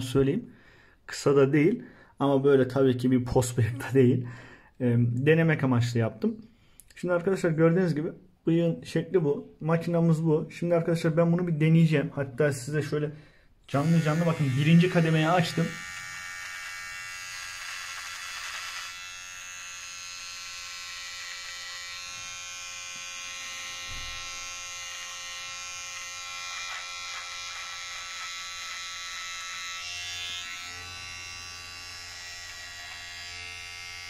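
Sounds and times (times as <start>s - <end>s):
hair trimmer buzzing: 13.7s - 34.0s.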